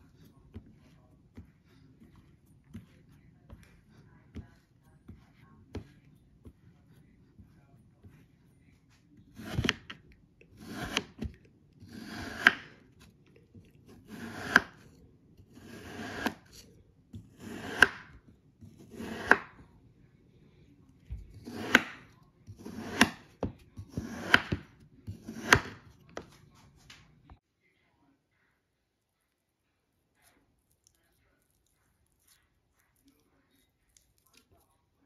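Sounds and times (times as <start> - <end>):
knife slicing kinetic sand: 10.6 - 12.8, 13.9 - 14.9, 15.5 - 16.6, 17.2 - 19.6, 21.4 - 25.9.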